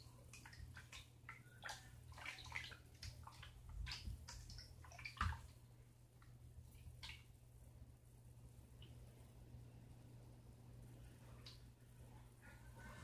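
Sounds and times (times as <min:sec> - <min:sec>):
wet squishes of stirred mixture: 0:00.0 - 0:07.6.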